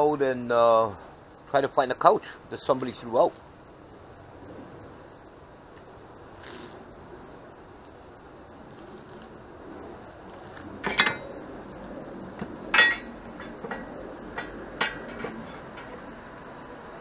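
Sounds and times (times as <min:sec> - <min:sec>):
sharp metallic clinks: 0:12.7 - 0:16.0.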